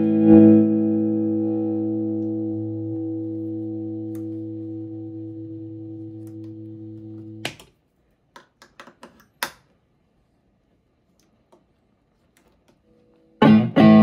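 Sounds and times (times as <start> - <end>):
electric guitar chord ringing: 0.0 - 7.4, 13.4 - 14.0
guitar cable clicks and crackles: 2.1 - 4.6, 6.0 - 9.8, 11.2 - 14.0.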